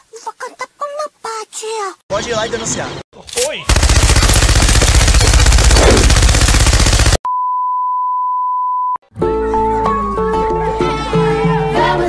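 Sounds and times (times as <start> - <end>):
automatic machine-gun fire: 3.7 - 7.2
children's song: 9.3 - 12.0.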